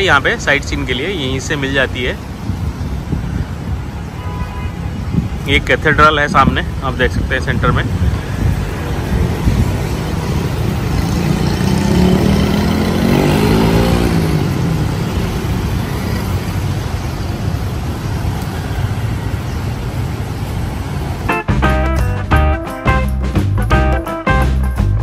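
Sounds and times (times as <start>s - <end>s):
passing vehicles rumble: 0.0s - 25.0s
engine accelerating: 9.1s - 15.9s.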